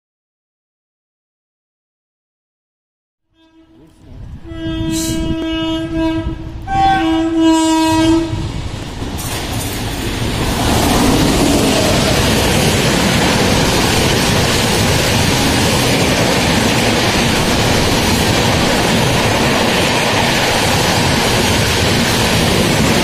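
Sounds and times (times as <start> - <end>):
train horn blast: 3.3 - 8.5
train wheels rushing on rails: 4.5 - 23.0.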